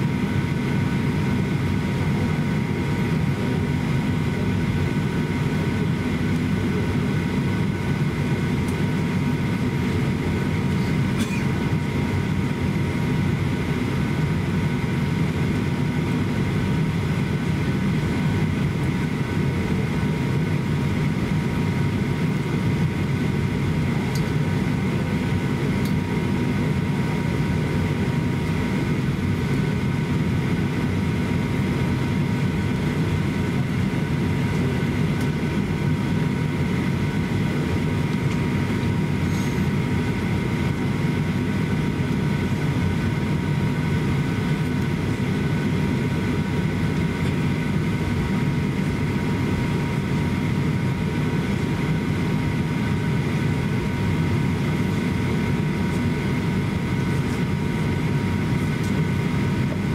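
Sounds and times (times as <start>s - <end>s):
aircraft cabin rumble: 0.0s - 59.9s.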